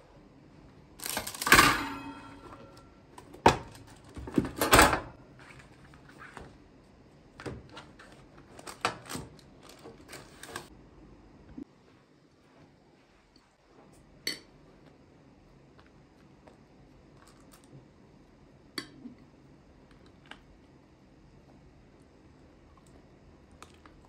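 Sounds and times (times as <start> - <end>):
wire rack clattering onto baking tray: 1.0 - 2.8
baking trays clanking: 1.0 - 2.9.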